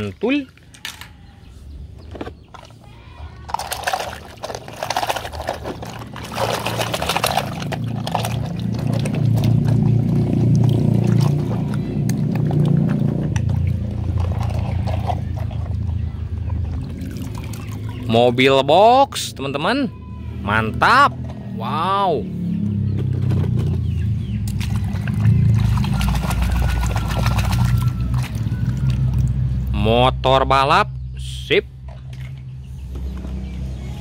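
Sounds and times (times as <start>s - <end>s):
puddle water splashing: 0.0s - 1.0s, 2.3s - 18.5s, 23.0s - 29.7s.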